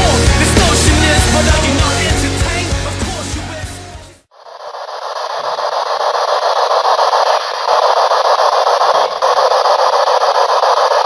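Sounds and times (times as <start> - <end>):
chopped radio static hiss: 4.3 - 11.0.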